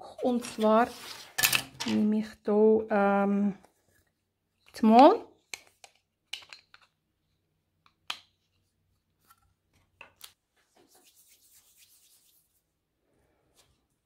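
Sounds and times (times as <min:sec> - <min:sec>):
hand rubbing paper: 0:10.8 - 0:12.6.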